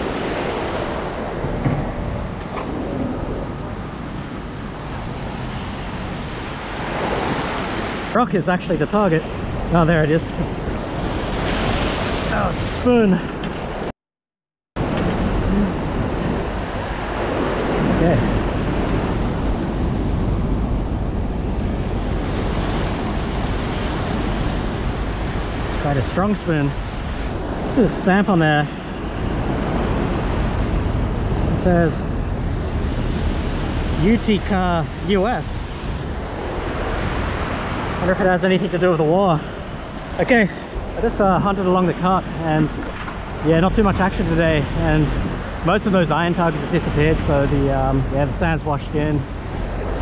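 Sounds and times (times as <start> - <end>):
ocean surf washing: 0.0 - 13.9, 14.8 - 50.0
wind buffeting microphone: 0.0 - 13.9, 14.8 - 50.0.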